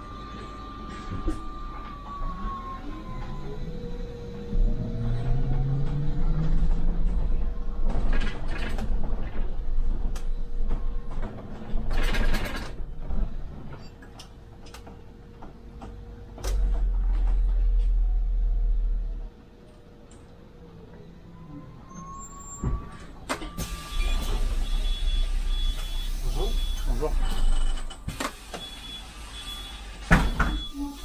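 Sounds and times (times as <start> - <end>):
bus engine rumbling: 0.0 - 31.0
rattles and clicks: 5.5 - 18.1
heavier low rumble: 16.1 - 19.5.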